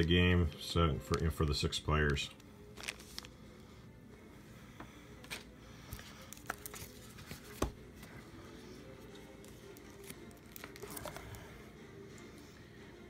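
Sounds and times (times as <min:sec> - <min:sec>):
rustling cards and paper: 0:01.0 - 0:03.6, 0:05.2 - 0:11.6.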